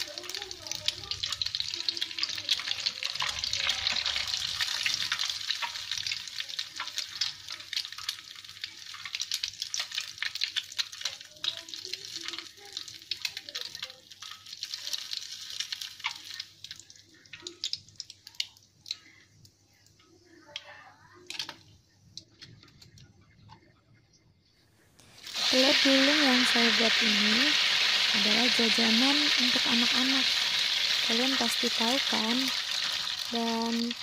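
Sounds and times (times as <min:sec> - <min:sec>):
egg sizzling in hot oil: 0:00.0 - 0:23.0, 0:25.0 - 0:34.0.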